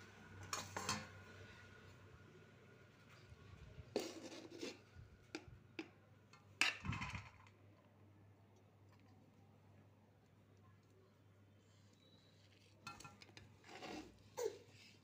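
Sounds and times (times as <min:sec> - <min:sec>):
metal spoon scraping a pot: 0:03.9 - 0:04.9, 0:12.5 - 0:14.3.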